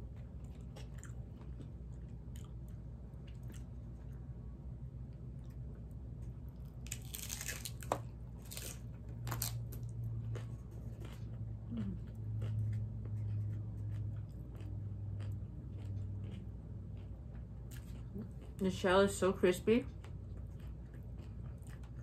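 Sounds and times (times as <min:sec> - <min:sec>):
taco shell crunching: 0:00.0 - 0:04.2, 0:06.4 - 0:18.6, 0:20.0 - 0:22.0
quiet chewing: 0:00.0 - 0:04.3, 0:10.1 - 0:18.7, 0:19.8 - 0:22.0.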